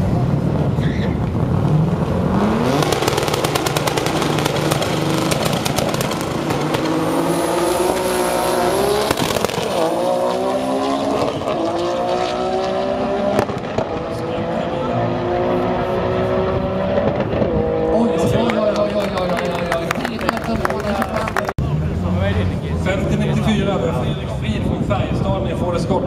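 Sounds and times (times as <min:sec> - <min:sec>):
drag car engine revving: 0:00.0 - 0:18.3
engine crackling: 0:00.1 - 0:12.1.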